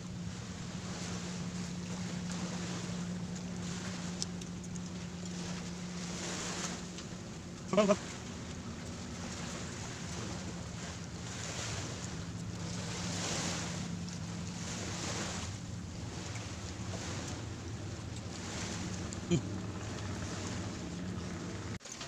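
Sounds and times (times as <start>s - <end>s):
steady low hum: 0.0s - 21.8s.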